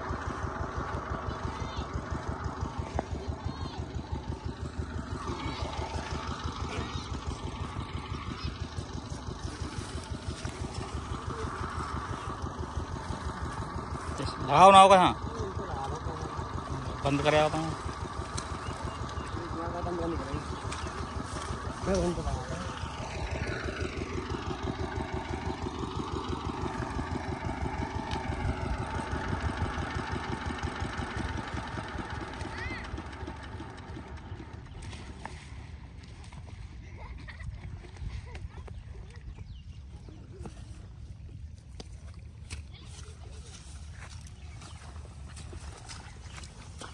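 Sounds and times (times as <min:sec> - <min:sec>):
diesel water pump engine running: 0:00.0 - 0:46.9.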